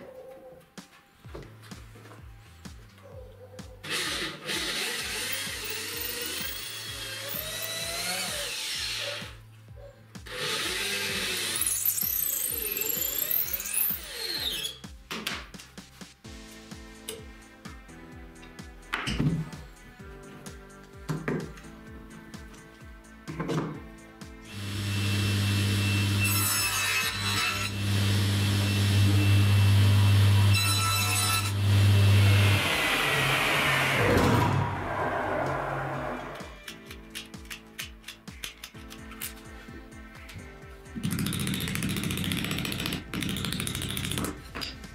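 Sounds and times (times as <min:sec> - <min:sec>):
background music with beat: 0:00.6 - 0:03.9, 0:14.7 - 0:24.6, 0:36.2 - 0:44.9
electric drill boring wood: 0:03.8 - 0:09.4, 0:10.3 - 0:14.8, 0:24.5 - 0:36.4, 0:41.0 - 0:44.6
saw blade cutting wood: 0:03.8 - 0:09.4, 0:10.3 - 0:14.8, 0:24.5 - 0:36.5, 0:41.0 - 0:44.8
table saw motor humming: 0:03.8 - 0:09.4, 0:10.3 - 0:14.8, 0:24.5 - 0:36.4.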